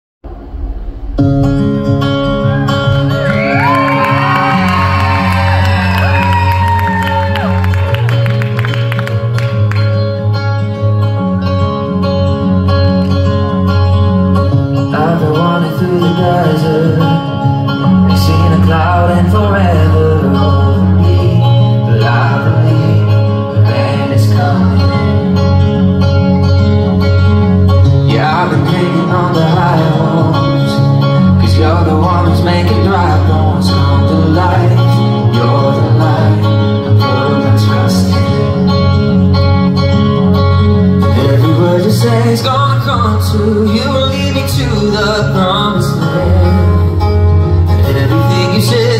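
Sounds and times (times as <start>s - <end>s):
live band music: 0.3s - 48.9s
man singing through pa: 14.8s - 25.4s, 28.0s - 38.9s, 41.0s - 48.9s.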